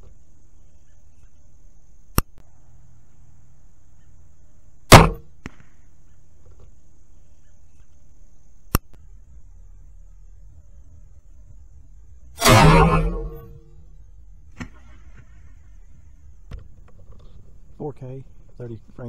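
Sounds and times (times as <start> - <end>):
sharp click: 2.1 - 2.4, 4.9 - 5.6, 8.7 - 9.0
bolt striking target: 4.9 - 5.6, 12.4 - 13.7
crossbow firing crack: 4.9 - 5.8, 12.4 - 13.8, 14.4 - 15.9.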